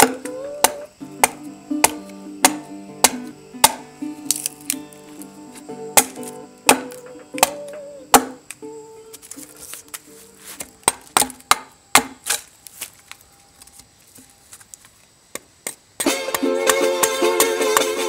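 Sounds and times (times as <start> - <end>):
axe chopping into log: 0.0 - 4.8, 5.9 - 8.5, 10.6 - 12.5
guitar music: 0.0 - 10.9, 16.0 - 18.0
loud strummed guitar: 16.0 - 18.0.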